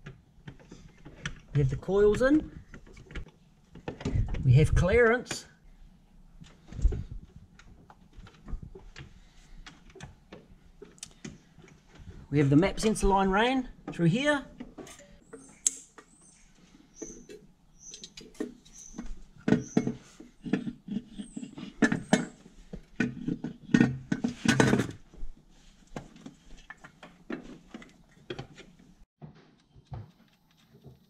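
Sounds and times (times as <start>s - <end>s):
short high squeaks: 15.3s - 19.0s.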